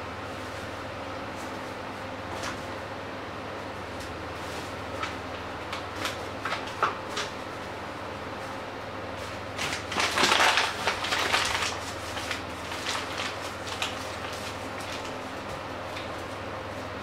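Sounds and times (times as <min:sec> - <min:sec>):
steady low hum: 0:00.0 - 0:17.0
paper bag rustling: 0:08.3 - 0:16.4.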